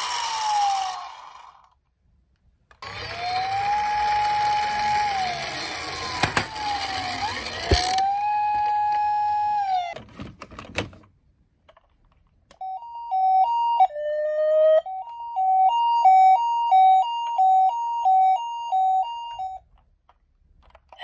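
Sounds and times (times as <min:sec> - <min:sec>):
toy ambulance two-tone siren: 0:02.8 - 0:10.0, 0:12.6 - 0:19.7.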